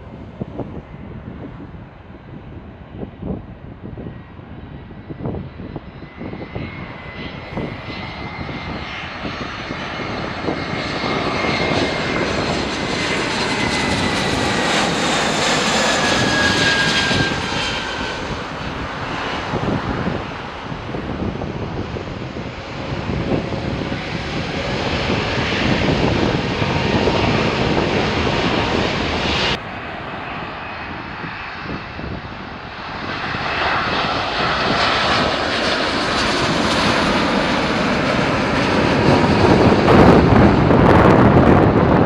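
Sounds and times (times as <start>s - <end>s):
jet engines landing: 0.0s - 42.0s
jet engines whining: 3.9s - 42.0s.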